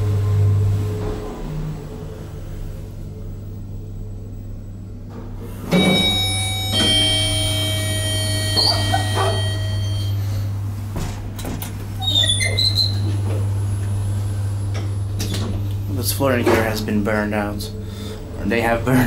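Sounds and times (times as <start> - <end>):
elevator doors sliding open: 0.0 - 3.5, 4.7 - 19.0
steady low hum: 0.0 - 19.0
two-note elevator chime: 5.7 - 10.5.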